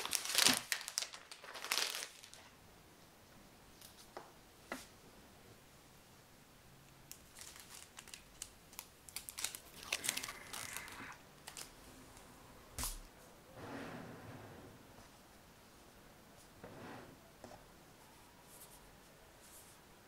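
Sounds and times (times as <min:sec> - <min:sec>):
plastic film crackling: 0:00.0 - 0:02.5, 0:07.1 - 0:12.3.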